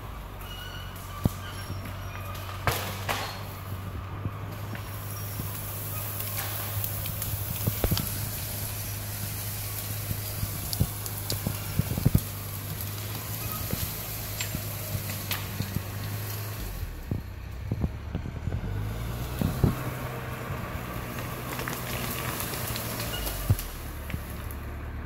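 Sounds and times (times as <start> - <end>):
diesel dozer engine running: 0.0 - 25.0.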